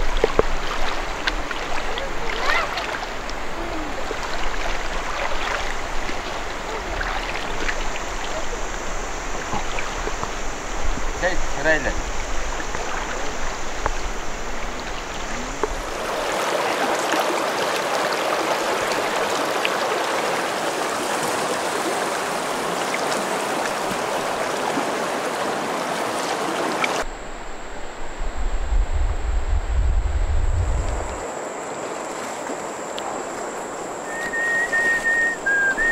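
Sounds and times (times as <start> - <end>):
river water rushing over rapids: 0.0 - 27.1
low rumble: 27.1 - 31.2.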